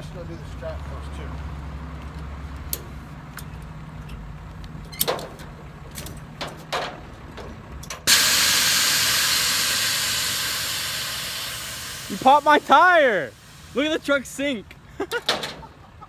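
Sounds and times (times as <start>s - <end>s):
tire deflating with air rush: 8.0s - 14.9s.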